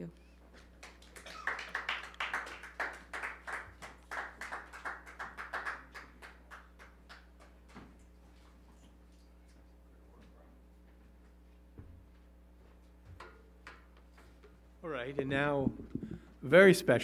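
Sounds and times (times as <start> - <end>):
audience applauding: 0.8 - 7.6.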